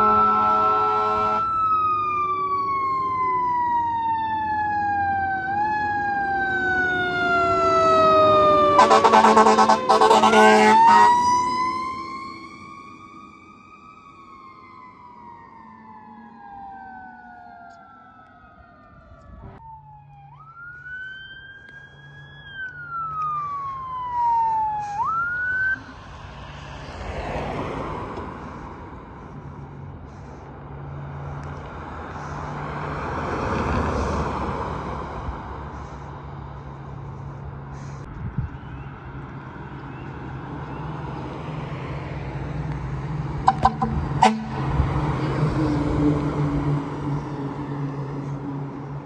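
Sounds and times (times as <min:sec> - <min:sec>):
fire engine siren wailing: 0:00.0 - 0:49.0
vehicles passing on road: 0:00.0 - 0:49.0.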